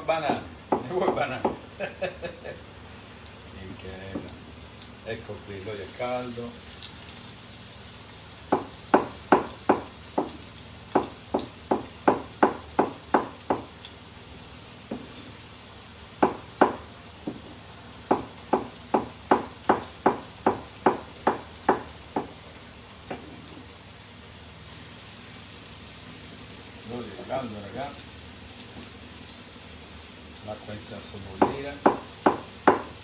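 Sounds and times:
oil hissing in pan: 0.0 - 33.0
knife chopping on wooden board: 0.2 - 1.6, 8.5 - 13.7, 14.9 - 15.2, 16.2 - 22.4, 31.4 - 33.0.

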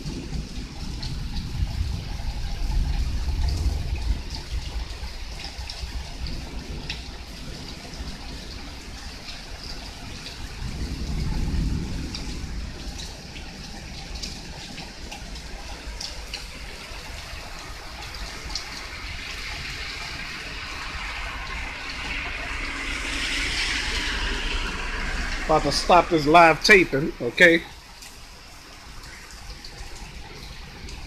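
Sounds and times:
heavy rain pouring: 0.0 - 31.0
sharp drip ticks: 0.3 - 31.0
low rumble: 16.3 - 31.0.

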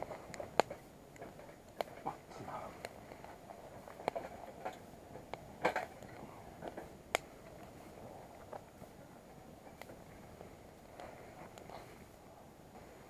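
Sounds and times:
sharp snaps and clicks: 0.0 - 7.8
wood fire crackling: 0.0 - 13.0.

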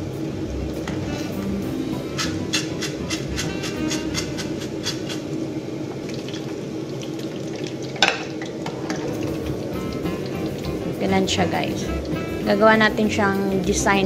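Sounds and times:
skimmer scraping a pan: 1.0 - 5.3
hot oil sizzling in a pan: 6.1 - 13.8.

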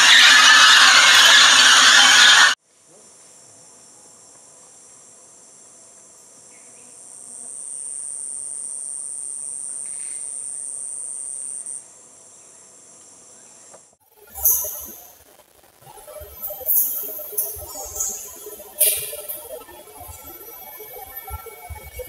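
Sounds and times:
loud high insect buzz: 6.2 - 11.9, 14.2 - 15.2, 15.9 - 22.0
insects trilling chorus: 6.4 - 15.2, 15.9 - 22.0.

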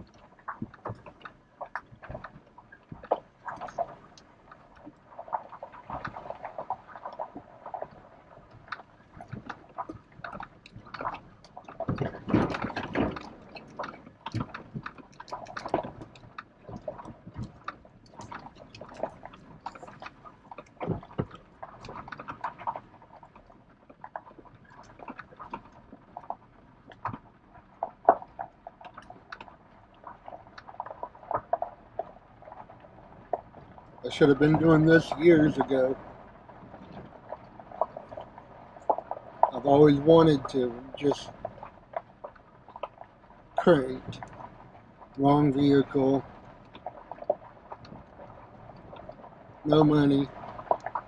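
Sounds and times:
cab rattles and knocks: 9.2 - 20.0.

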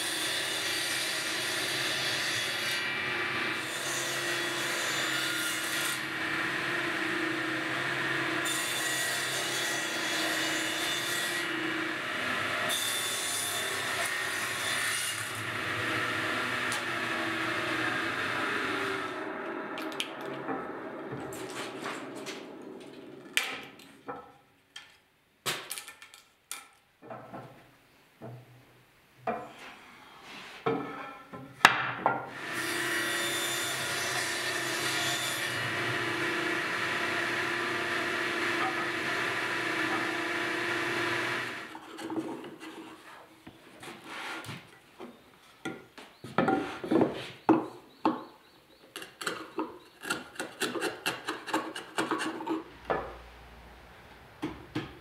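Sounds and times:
table saw cutting wood: 0.0 - 23.7, 32.3 - 41.8.

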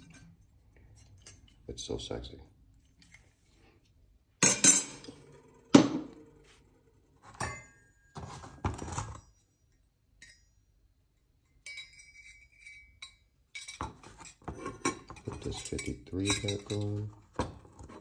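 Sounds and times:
ringing metal clink: 7.4 - 8.2, 9.1 - 13.8
metal parts knocking and clinking: 11.6 - 17.1.

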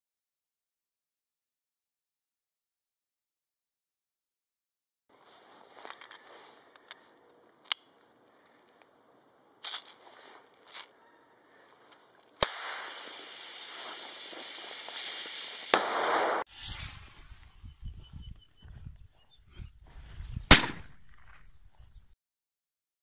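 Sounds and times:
small handling clicks: 5.7 - 9.0, 9.6 - 10.9
fuse hissing: 12.4 - 15.8
grenade bang: 12.4 - 16.5, 20.5 - 21.3.

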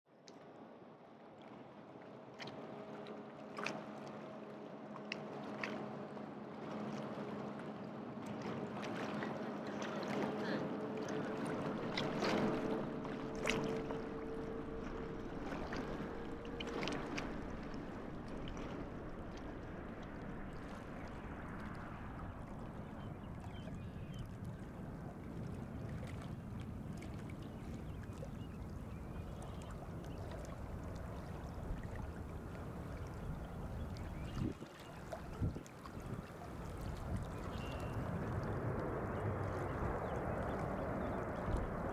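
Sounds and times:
small waves lapping shore: 0.2 - 41.9
low jet engine rumble: 5.8 - 41.9.

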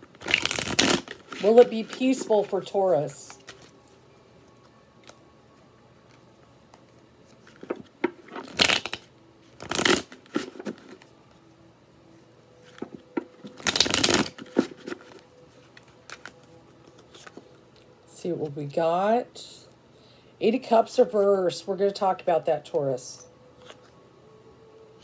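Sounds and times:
cards being shuffled: 0.1 - 4.0, 6.0 - 11.2, 12.6 - 17.5.

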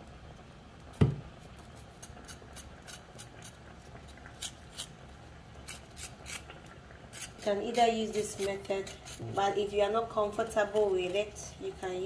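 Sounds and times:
sharp knock: 1.0 - 1.2.

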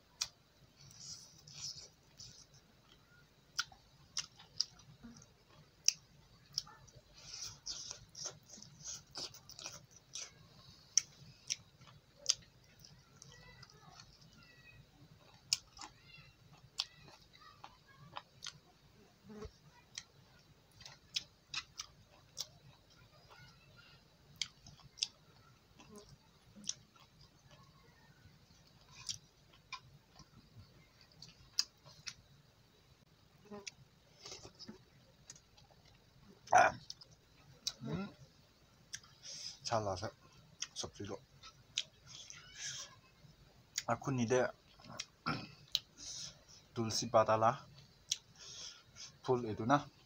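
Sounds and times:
man chewing and lip smacking: 0.2 - 14.3, 15.2 - 23.1, 24.3 - 27.8, 28.5 - 32.3, 33.5 - 37.9, 38.8 - 39.3, 40.6 - 40.8, 41.4 - 42.9, 44.7 - 46.2, 47.7 - 49.2.

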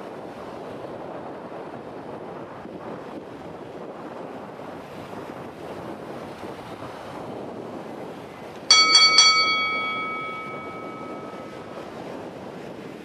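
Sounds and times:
wind buffeting microphone: 0.0 - 13.0
metallic bell ringing: 8.7 - 11.7.

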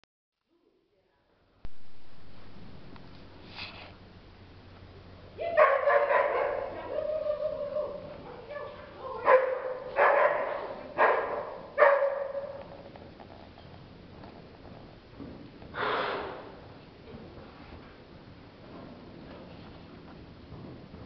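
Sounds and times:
animal calling with echo: 5.8 - 9.4.

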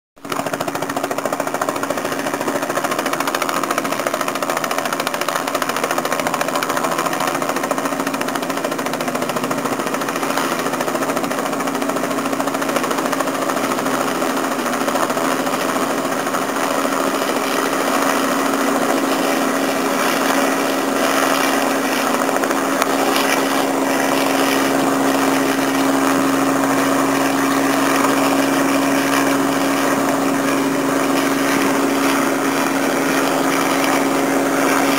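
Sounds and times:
helicopter rotor and engine hum: 0.2 - 34.9.

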